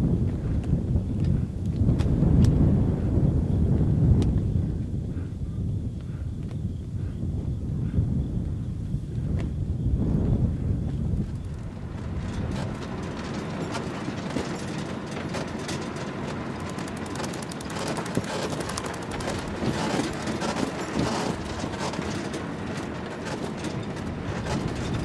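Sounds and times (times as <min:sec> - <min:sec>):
wind rumble: 0:00.0 - 0:25.0
rattling of bouncing vehicle: 0:10.1 - 0:25.0
vehicle engine: 0:11.1 - 0:25.0.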